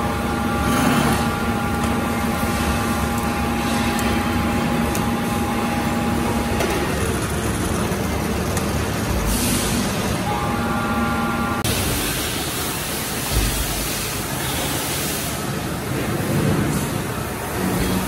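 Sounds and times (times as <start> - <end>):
drill press motor hum and whine: 0.0 - 16.1
hiss: 11.7 - 15.6.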